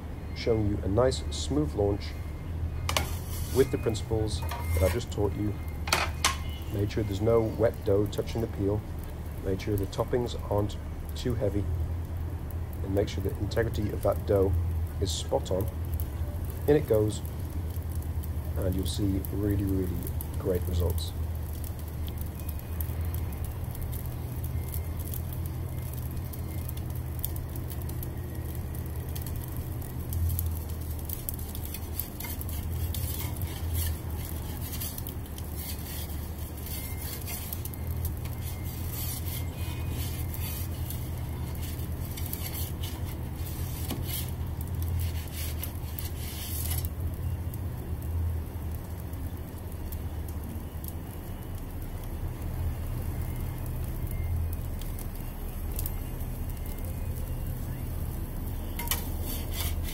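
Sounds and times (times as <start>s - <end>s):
gas burner rumble: 0.0s - 59.9s
metallic clinks and scrapes: 2.9s - 5.2s, 31.4s - 44.4s, 58.7s - 59.9s.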